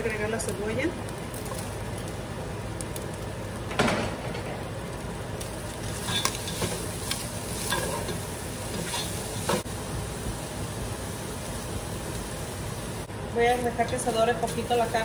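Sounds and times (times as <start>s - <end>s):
meat and onion sizzling in oil: 0.0s - 15.0s
spatula scraping pot: 6.0s - 9.6s.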